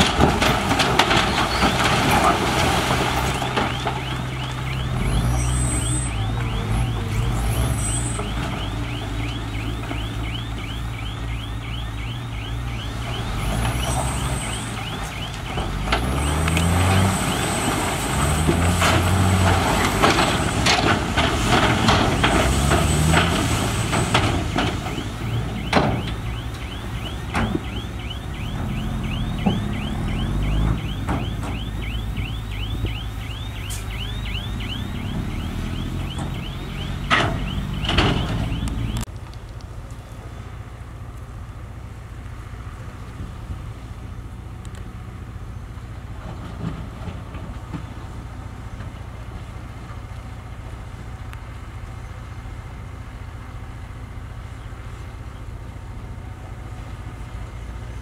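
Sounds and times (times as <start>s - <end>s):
diesel machine engine revving: 0.0s - 39.1s.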